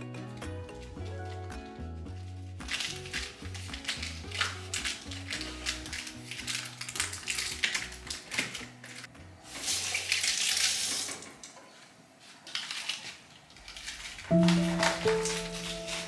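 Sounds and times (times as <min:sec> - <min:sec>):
background music: 0:00.0 - 0:09.5, 0:14.3 - 0:16.0
kitchen tap running: 0:02.7 - 0:11.6.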